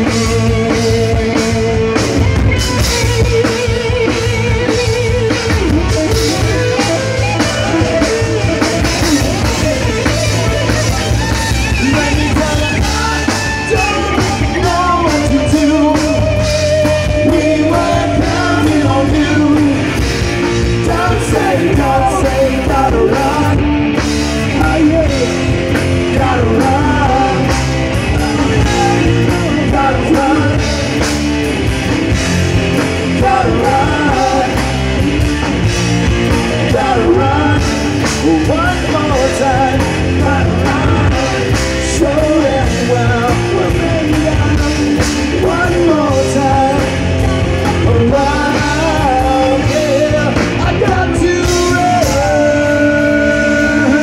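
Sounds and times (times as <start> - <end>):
drums: 0.0 - 54.0
electric guitar: 0.0 - 54.0
person singing lead vocals: 0.0 - 54.0
second voice singing: 20.7 - 23.6, 36.3 - 54.0.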